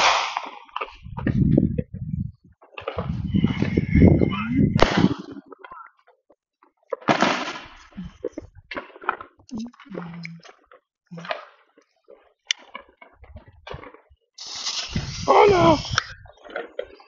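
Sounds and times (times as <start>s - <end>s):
firework bang with hiss: 0.0s - 0.7s, 4.7s - 5.4s, 7.1s - 7.8s, 14.4s - 16.1s
ground firework spraying hiss: 0.0s - 0.8s, 14.4s - 16.2s
firework pops: 0.0s - 1.4s, 2.6s - 3.8s, 4.7s - 5.7s, 6.9s - 9.6s, 12.5s - 16.6s.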